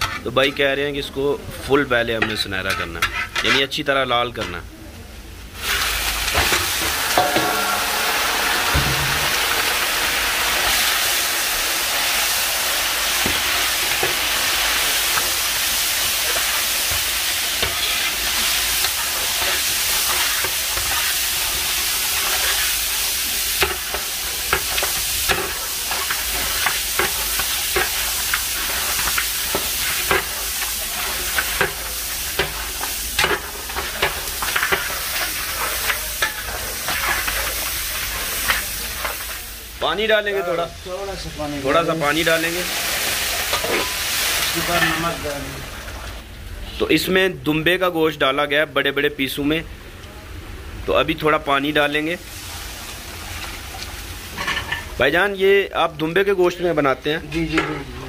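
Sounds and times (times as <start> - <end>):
metal ladle scraping pan: 2.2 - 3.6, 5.6 - 11.0, 15.0 - 23.0
meat sizzling in hot fat: 5.4 - 47.0, 49.8 - 58.0.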